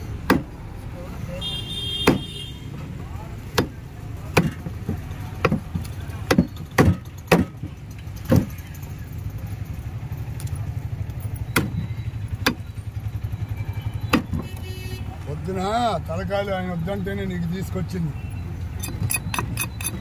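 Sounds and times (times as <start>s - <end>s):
vehicle engine idling: 0.0s - 17.4s
cleaver chopping on wooden block: 0.2s - 0.6s, 2.0s - 2.3s, 3.5s - 7.5s.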